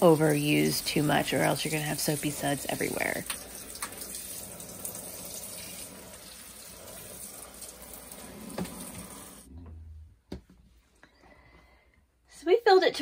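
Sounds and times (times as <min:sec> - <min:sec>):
shower head spraying water: 0:00.0 - 0:09.5.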